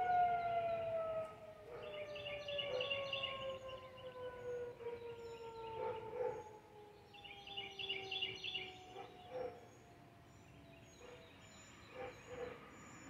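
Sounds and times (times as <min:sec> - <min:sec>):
tornado siren winding down: 0:00.0 - 0:05.8
birds chirping: 0:01.7 - 0:13.0.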